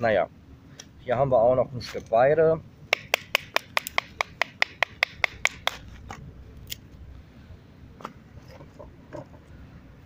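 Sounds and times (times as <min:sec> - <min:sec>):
wood stick cracking: 0:02.9 - 0:06.9
faint knocks and rustles: 0:08.0 - 0:09.6.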